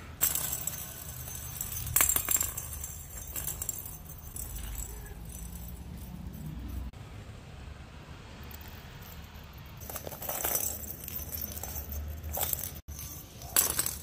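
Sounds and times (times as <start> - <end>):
plastic toy balls jingling: 0.1 - 6.9, 8.4 - 14.0.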